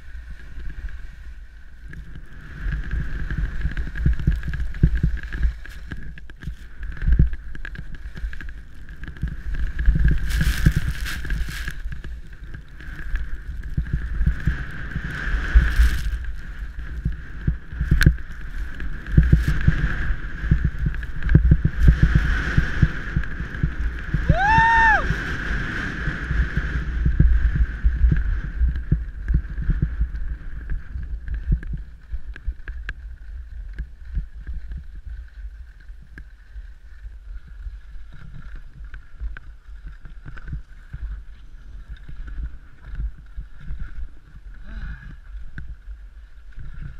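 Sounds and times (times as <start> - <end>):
skis scraping over snow: 0.0 - 46.9
wind buffeting microphone: 0.0 - 46.9.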